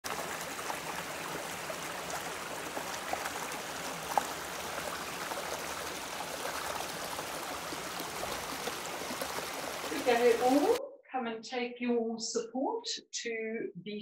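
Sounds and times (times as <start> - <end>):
stream babbling over stones: 0.0 - 10.8
water splashes: 0.0 - 10.8.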